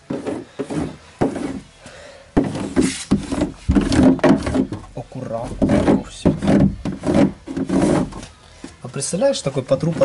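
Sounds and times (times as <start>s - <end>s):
hand rubbing foil mat on metal: 2.5s - 8.4s.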